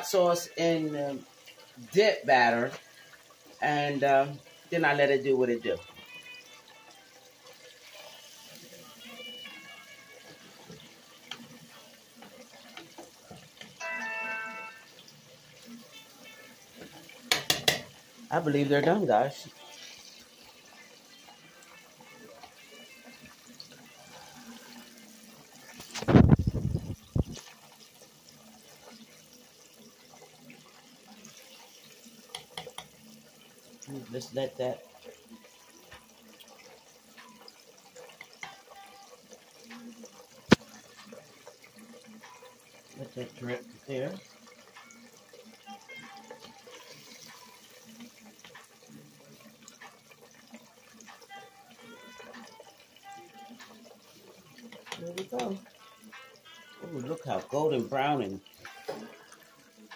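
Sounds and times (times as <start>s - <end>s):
chicken frying in oil: 0.0s - 59.9s
oil crackling pops: 40.4s - 40.7s.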